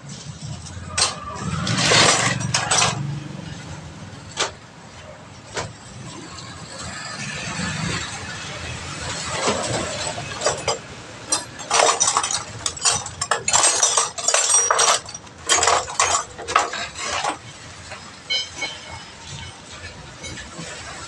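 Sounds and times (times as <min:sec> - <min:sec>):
tyre tool clanking on wheel rim: 0:09.3 - 0:20.7.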